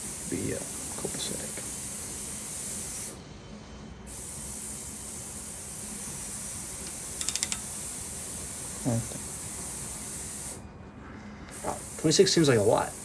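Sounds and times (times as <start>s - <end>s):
hiss of shop equipment: 0.0s - 13.0s
torque wrench ratchet clicks: 6.8s - 8.0s.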